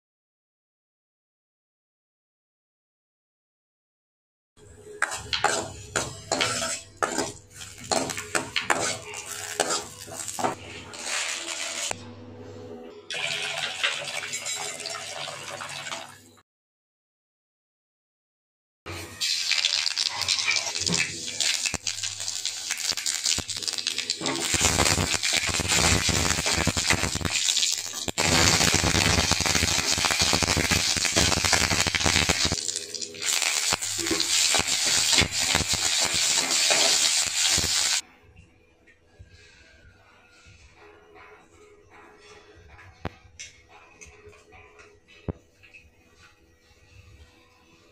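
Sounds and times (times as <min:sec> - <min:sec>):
metal ladle stirring: 0:05.0 - 0:10.6
spices sizzling in hot oil: 0:05.0 - 0:11.9, 0:18.9 - 0:38.0
spoon scraping a metal pan: 0:05.0 - 0:11.9.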